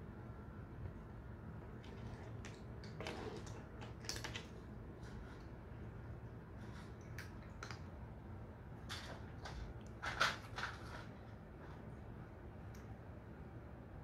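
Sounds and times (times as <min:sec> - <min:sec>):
cats foraging dry food clicks: 0:01.8 - 0:04.7, 0:06.7 - 0:08.0.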